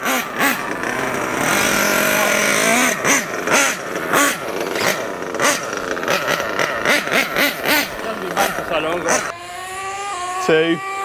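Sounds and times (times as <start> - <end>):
rc glow engine revving: 0.0 - 11.0.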